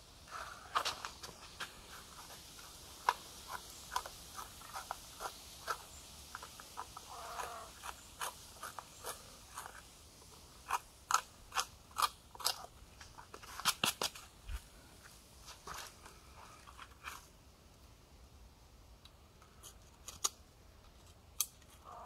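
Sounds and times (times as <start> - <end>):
steel awl grinding bone: 6.4 - 9.8.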